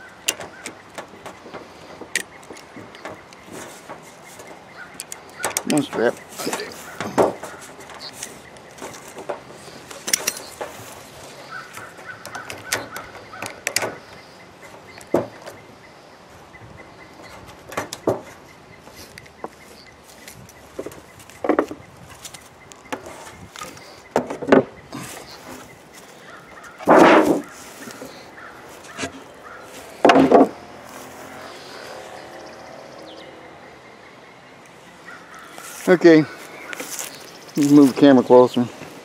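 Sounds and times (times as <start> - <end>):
strap buckles clicking and rustling: 0.0 - 15.7
hive cover knocking and scraping: 5.4 - 11.0, 26.8 - 28.1.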